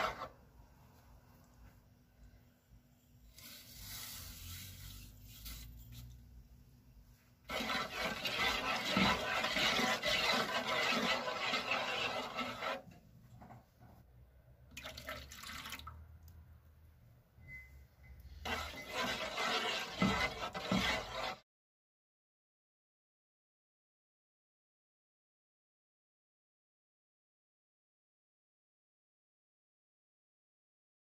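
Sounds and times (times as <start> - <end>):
wooden spoon stirring liquid: 0.0 - 0.4, 7.4 - 13.6, 18.3 - 21.4
sugar pouring into pot: 7.5 - 12.8
juice pouring splash: 14.7 - 16.0.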